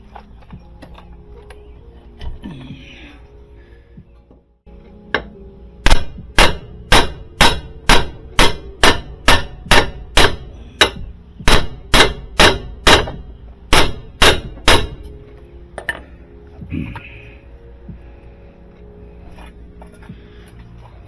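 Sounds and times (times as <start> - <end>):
hammer striking metal: 5.1 - 15.2.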